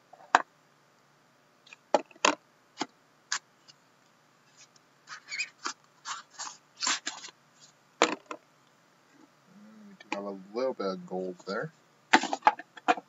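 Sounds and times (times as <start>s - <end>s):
scraping and rustling of contents: 1.6s - 8.4s, 11.3s - 13.0s.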